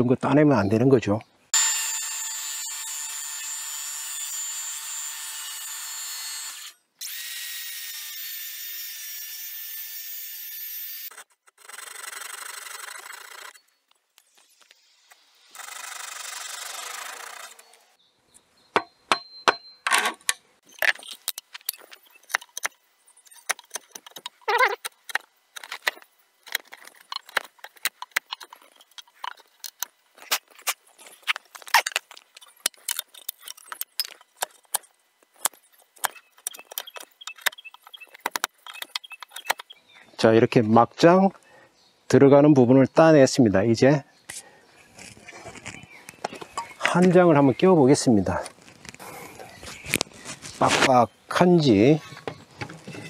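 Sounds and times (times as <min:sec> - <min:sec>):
hand saw cutting wood: 0:01.6 - 0:13.6, 0:15.5 - 0:17.8.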